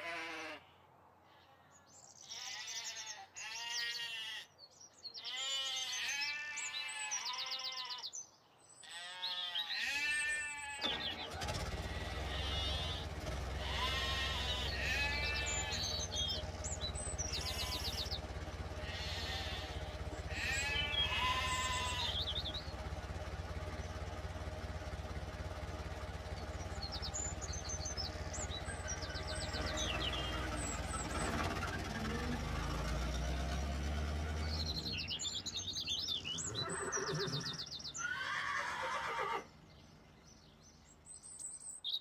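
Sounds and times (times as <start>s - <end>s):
sheep bleating: 0.0s - 8.2s, 8.8s - 11.1s, 11.7s - 22.6s, 36.4s - 39.5s
birds chirping: 1.4s - 42.0s.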